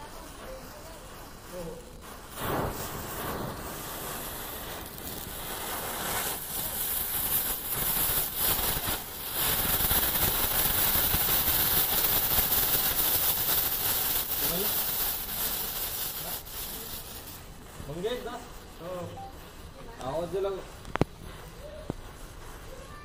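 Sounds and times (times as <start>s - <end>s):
firework fountain hissing: 0.0s - 23.0s.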